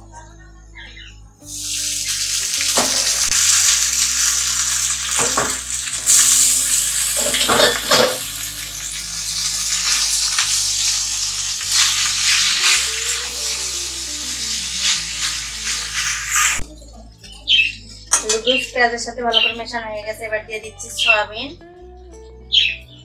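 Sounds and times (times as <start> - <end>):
noodles sizzling in oil: 1.4 - 16.6.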